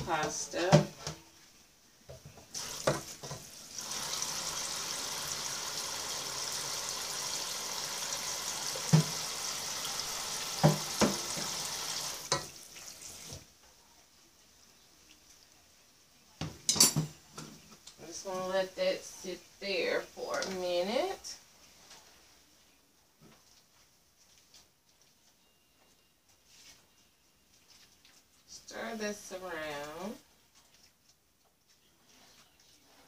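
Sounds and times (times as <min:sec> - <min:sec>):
water pouring into sink: 0:02.5 - 0:13.4
pot knocking against sink: 0:08.8 - 0:09.2, 0:10.6 - 0:11.6.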